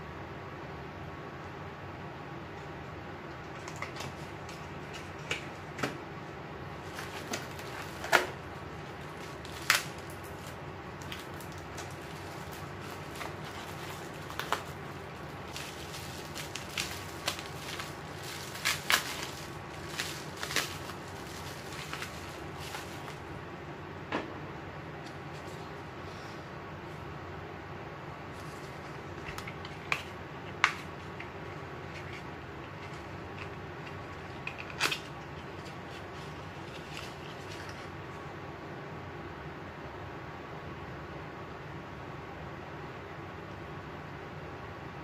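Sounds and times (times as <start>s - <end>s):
electric fan humming: 0.0s - 45.0s
bubble wrap crinkling: 6.7s - 23.4s, 28.3s - 38.1s.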